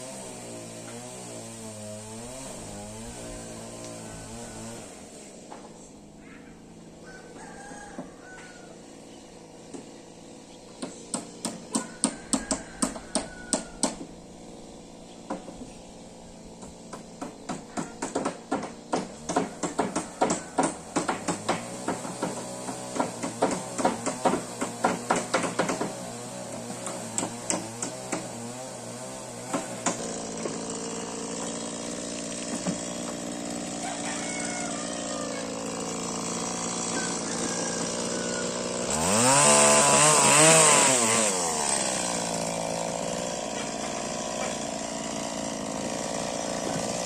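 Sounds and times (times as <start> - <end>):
rooster crowing: 4.0 - 4.8, 7.0 - 8.9, 11.7 - 14.0, 19.5 - 20.9, 33.8 - 36.0, 36.7 - 39.4
motor engine running: 28.9 - 47.0.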